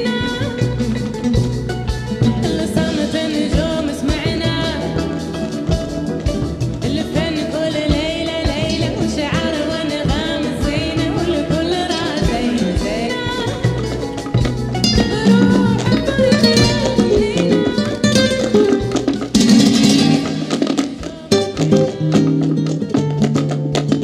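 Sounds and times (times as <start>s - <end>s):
flamenco fusion music: 0.0s - 24.0s
person singing: 2.2s - 6.1s, 6.8s - 18.9s, 20.0s - 22.2s.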